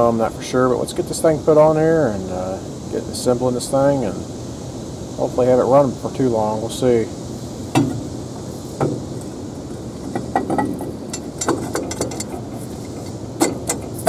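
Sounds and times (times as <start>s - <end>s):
steady background hum: 0.0s - 14.0s
metal manifold clinking and knocking: 7.7s - 8.1s, 8.8s - 9.3s, 10.0s - 14.0s.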